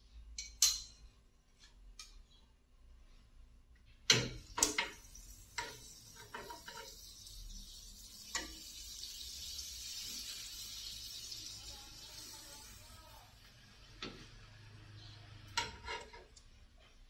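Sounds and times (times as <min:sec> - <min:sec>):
metal tongs clacking on pan: 0:00.4 - 0:01.0
bread sizzling in pan: 0:04.4 - 0:14.0.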